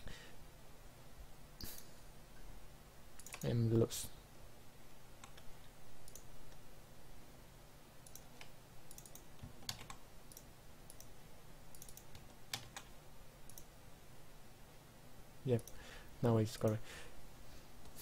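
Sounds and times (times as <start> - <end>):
computer keyboard typing: 3.2 - 3.6, 5.2 - 6.6, 8.0 - 11.1, 11.7 - 12.9.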